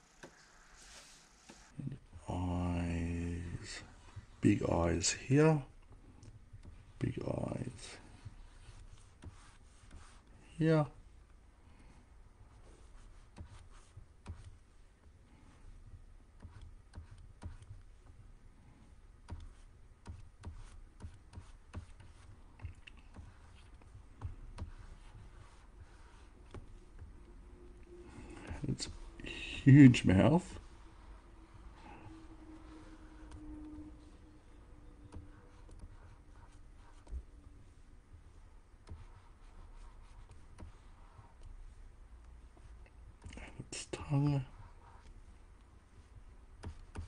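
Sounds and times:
stylus scratching on tablet: 6.6s - 10.3s, 12.5s - 18.2s, 18.9s - 27.2s, 27.9s - 47.0s
stylus tapping on graphics tablet: 8.2s - 10.2s, 13.0s - 14.6s, 16.4s - 18.1s, 19.2s - 27.2s, 38.2s - 41.7s, 46.6s - 47.0s.

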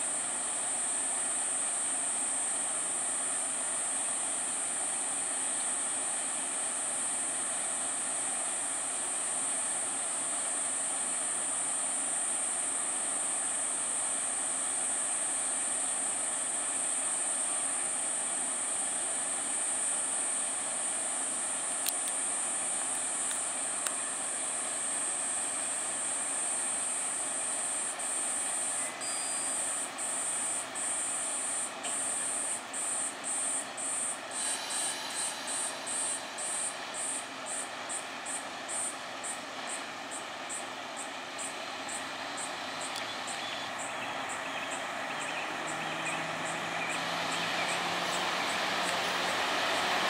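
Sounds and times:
diesel railcar engine running: 0.0s - 50.0s
high insect drone: 0.0s - 50.0s.

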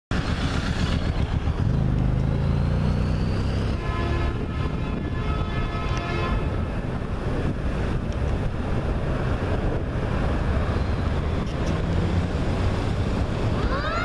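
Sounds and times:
passing road traffic: 0.1s - 14.0s
distant fire truck air horn: 3.7s - 6.7s
wind buffeting microphone: 4.2s - 13.7s.

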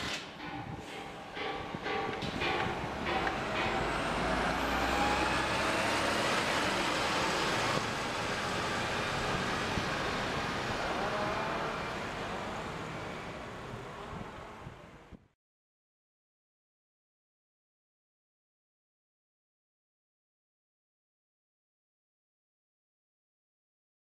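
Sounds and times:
street traffic: 0.0s - 15.3s
truck driving past: 0.9s - 15.2s.

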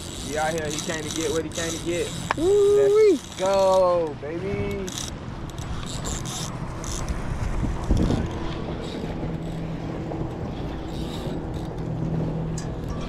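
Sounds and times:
boat motor running: 0.0s - 13.0s
water: 0.0s - 13.0s
wind on microphone: 5.6s - 13.0s.

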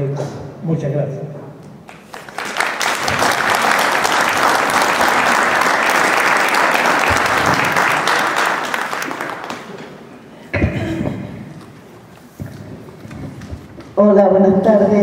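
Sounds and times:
audience applauding: 1.9s - 10.2s.

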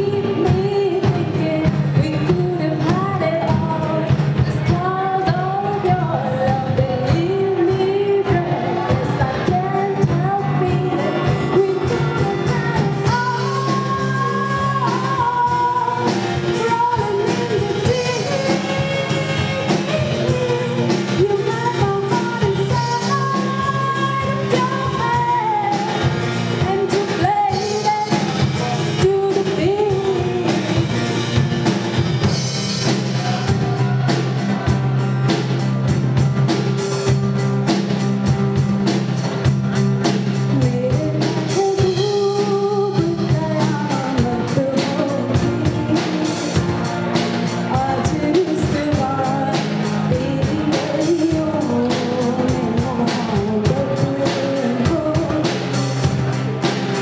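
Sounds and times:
woman singing: 0.0s - 31.3s, 40.3s - 56.4s
drum kit beat: 0.0s - 57.0s.

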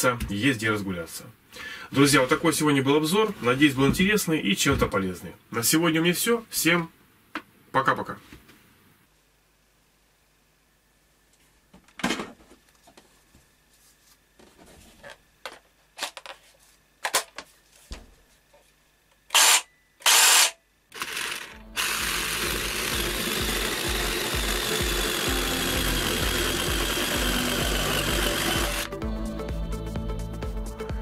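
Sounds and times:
jigsaw cutting wood: 19.3s - 28.9s.

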